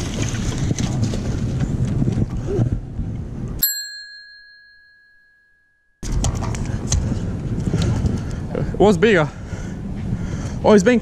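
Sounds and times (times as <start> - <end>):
wind buffeting microphone: 0.0 - 3.6, 6.0 - 11.0
bell-like ding chime: 3.6 - 6.0.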